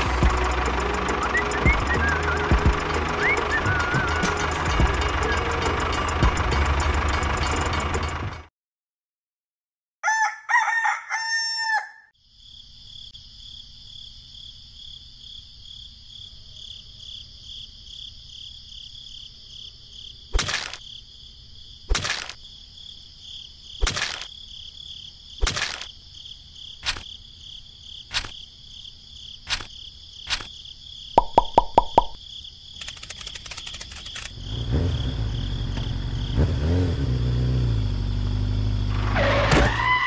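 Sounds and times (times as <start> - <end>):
rooster crowing: 10.0 - 12.1
sharp clicks: 28.1 - 28.4, 29.5 - 30.6, 32.8 - 34.4.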